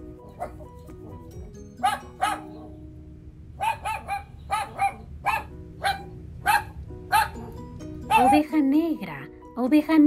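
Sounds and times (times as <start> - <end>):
soft background music: 0.0 - 10.0
dog yapping: 1.8 - 2.7, 3.6 - 8.5.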